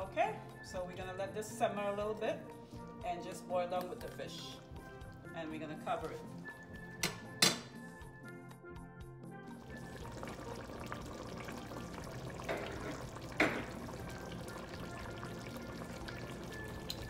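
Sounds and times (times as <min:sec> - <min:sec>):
gravy bubbling in a pot: 0:09.6 - 0:17.0.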